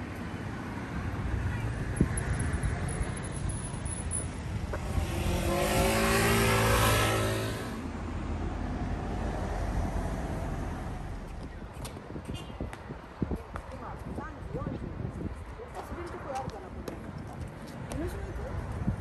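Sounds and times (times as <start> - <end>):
low rumble of street noise: 0.0 - 19.0
scooter engine passing: 1.5 - 8.2.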